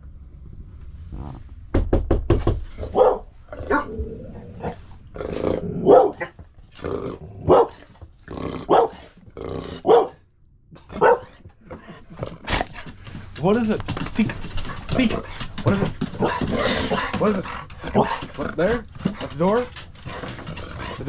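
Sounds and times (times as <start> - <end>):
knocking on door: 1.7 - 2.7
dog barking: 2.8 - 3.9, 5.8 - 6.4, 7.4 - 7.8, 8.7 - 9.1, 9.8 - 10.2, 10.8 - 11.4.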